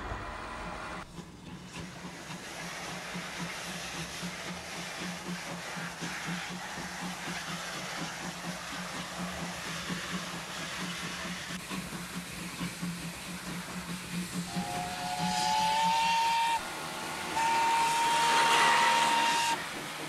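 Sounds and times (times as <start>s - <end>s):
rhythmic rumble of tram running: 0.0s - 20.0s
steam locomotive whistle: 14.5s - 19.8s.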